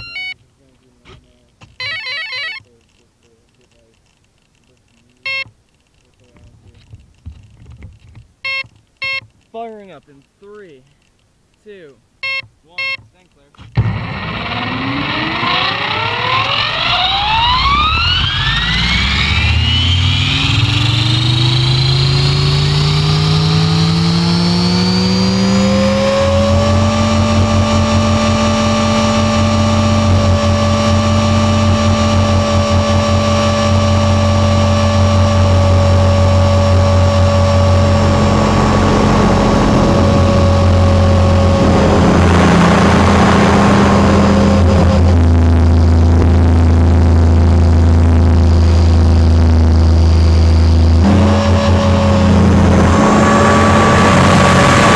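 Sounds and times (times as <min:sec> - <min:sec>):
rc helicopter motor whine: 0:13.8 - 0:52.9
rushing noise: 0:36.8 - 0:54.9.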